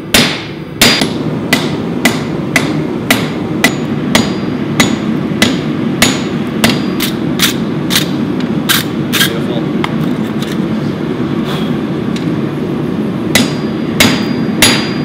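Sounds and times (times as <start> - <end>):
hammer striking metal on anvil: 0.0 - 8.2, 13.3 - 15.0.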